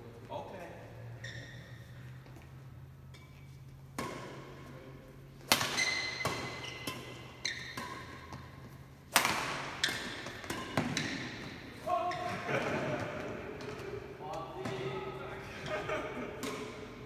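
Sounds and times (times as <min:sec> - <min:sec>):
rackets hitting shuttlecock: 0:03.9 - 0:04.5, 0:05.4 - 0:14.9, 0:16.1 - 0:17.0.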